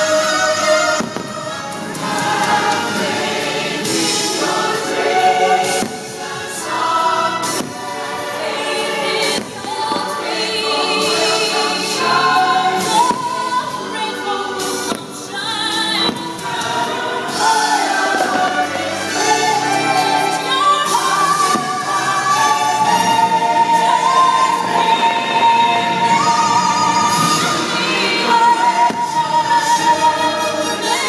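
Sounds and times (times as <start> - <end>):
choir singing: 0.0 - 31.0
firework bangs: 0.8 - 20.3.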